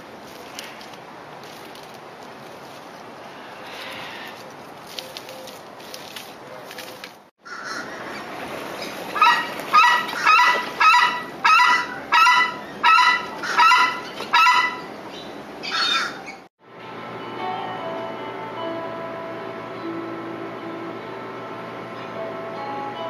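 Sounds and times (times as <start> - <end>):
bird honking calls: 8.8 - 15.0.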